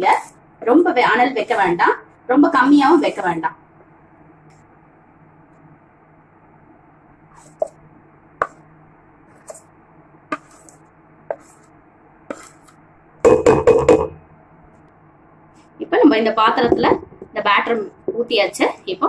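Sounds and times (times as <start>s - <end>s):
knife scraping steel bowl: 10.3s - 11.7s, 12.3s - 12.7s.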